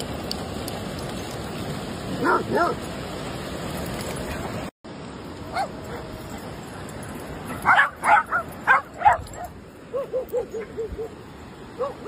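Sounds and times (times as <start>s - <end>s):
dogs barking: 2.2s - 2.8s, 5.5s - 6.1s, 7.5s - 11.2s, 11.8s - 12.0s
dog yipping: 7.5s - 11.1s, 11.8s - 12.0s.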